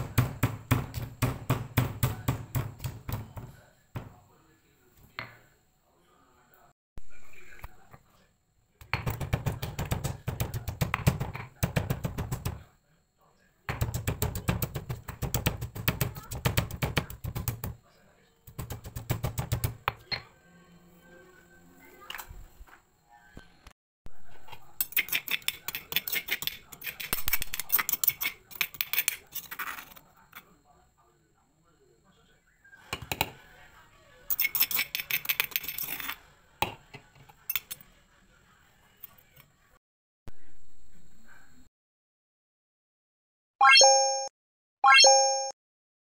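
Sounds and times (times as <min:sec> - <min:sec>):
stone pestle pounding in mortar: 0:00.0 - 0:04.1, 0:08.9 - 0:12.6, 0:13.7 - 0:17.8, 0:18.6 - 0:20.0
metal spoon scraping stone mortar: 0:24.4 - 0:30.0, 0:34.3 - 0:36.2.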